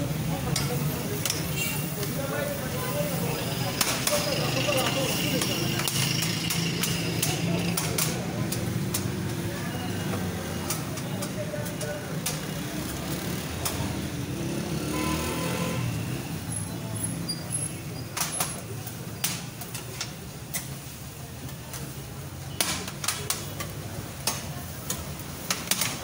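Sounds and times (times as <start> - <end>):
murmured voices: 0.0 - 14.8
low street hum: 0.0 - 26.0.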